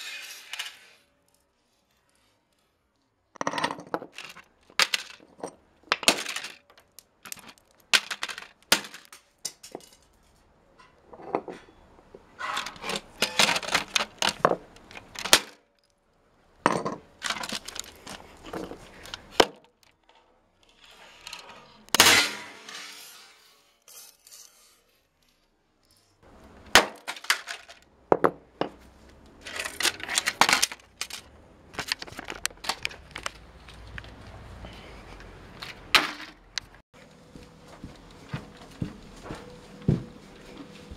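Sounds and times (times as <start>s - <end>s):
plastic keyboard cracking: 7.3s - 9.1s.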